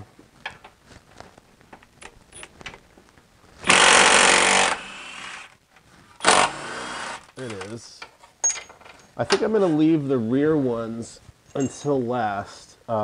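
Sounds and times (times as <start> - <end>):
impact wrench hammering: 3.6 - 5.5.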